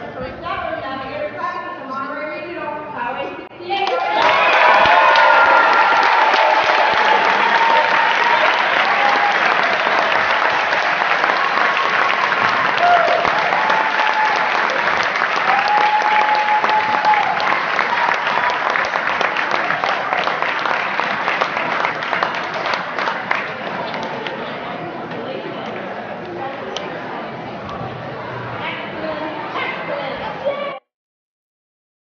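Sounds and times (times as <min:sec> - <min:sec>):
people cheering: 0:03.8 - 0:24.5
crowd applauding: 0:03.8 - 0:24.6.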